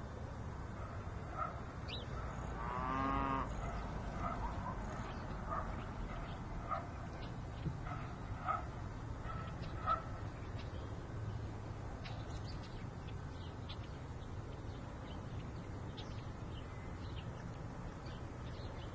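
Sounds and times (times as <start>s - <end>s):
dog barking: 0.8s - 1.6s, 3.6s - 4.9s, 5.5s - 7.0s, 7.8s - 10.2s.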